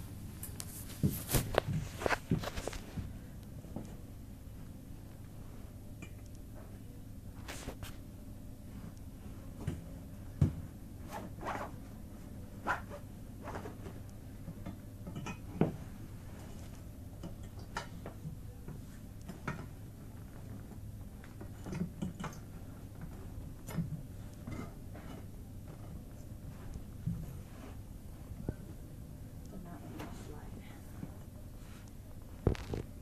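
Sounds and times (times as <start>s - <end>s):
canvas cot being assembled: 32.4s - 32.9s.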